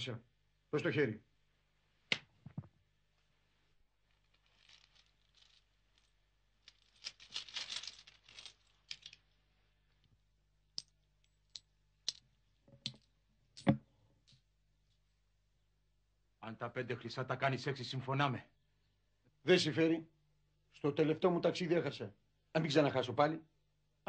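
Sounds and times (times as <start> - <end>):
cloth rustling: 2.3 - 10.3
coins clinking: 4.2 - 9.2.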